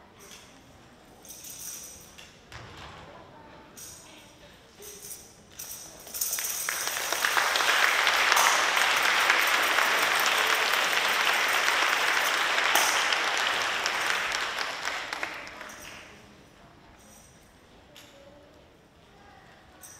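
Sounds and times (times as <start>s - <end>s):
audience applauding: 6.4s - 16.1s.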